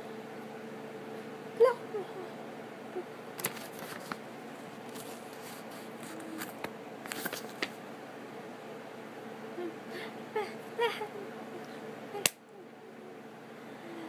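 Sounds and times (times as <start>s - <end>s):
faint steady hum: 0.0s - 14.0s
paper rustling and crackling: 3.4s - 4.2s, 4.9s - 7.8s.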